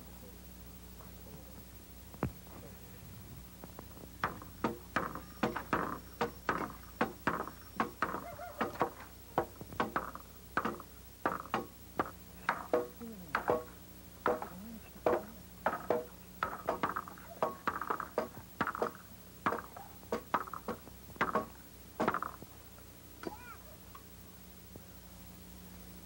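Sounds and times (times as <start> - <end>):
farm animals calling: 5.0 - 10.8.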